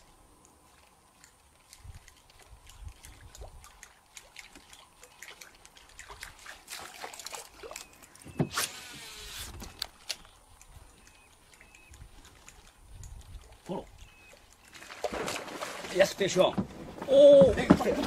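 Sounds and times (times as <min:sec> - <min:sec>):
light water splashes: 0:00.0 - 0:18.0
reel spool whirring: 0:07.6 - 0:12.0.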